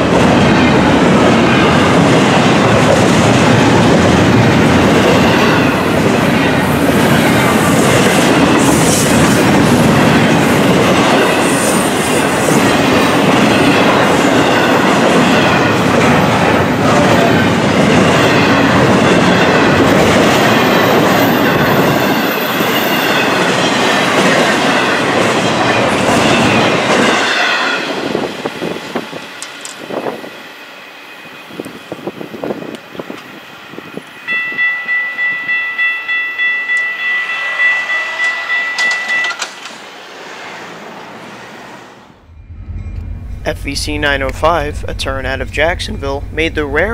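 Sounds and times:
freight train cars rolling past: 0.0s - 46.9s
pulsing tone: 42.2s - 46.9s.

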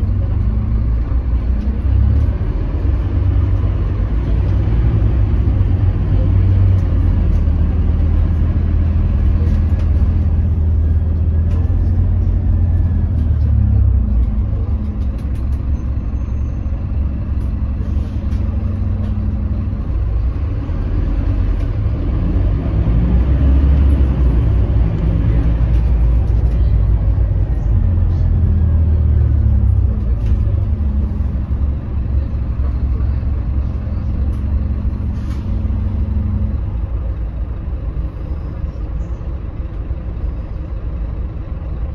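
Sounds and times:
bus diesel engine drone: 0.0s - 41.9s
road noise: 0.0s - 41.9s.

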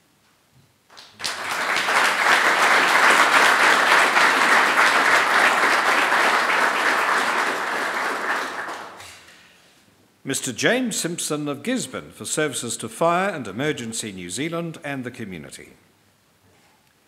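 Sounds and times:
audience applauding: 0.9s - 9.3s.

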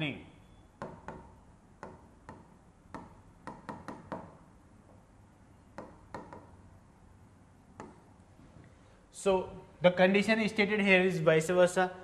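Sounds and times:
pen tapping on touchscreen glass: 0.8s - 4.4s, 5.8s - 6.5s, 7.8s - 8.1s.

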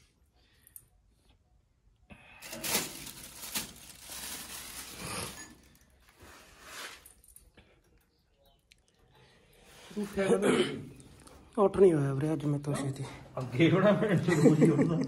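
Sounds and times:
plastic bags crinkling: 2.4s - 6.1s.

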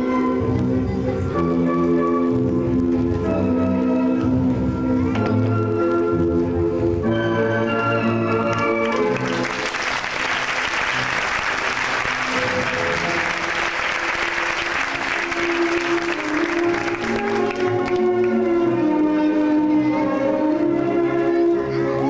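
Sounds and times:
audience applauding: 8.3s - 18.5s.

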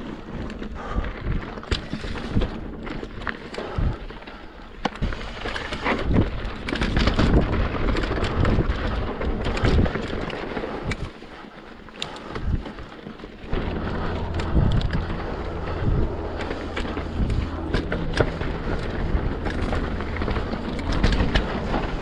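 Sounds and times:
bike knocks and rattles: 0.0s - 22.0s
bike tyres rumbling on rock: 0.0s - 22.0s
wind buffeting microphone: 13.4s - 22.0s.

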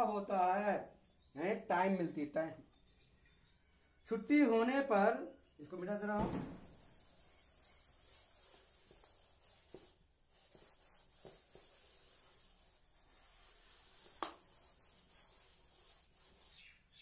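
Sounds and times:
duster wiping blackboard: 6.6s - 17.0s.

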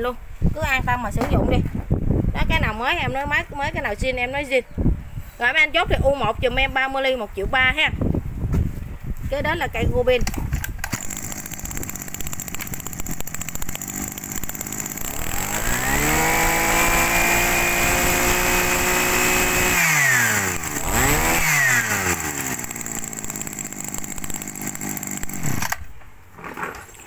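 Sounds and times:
brush cutter engine revving: 10.1s - 26.0s.

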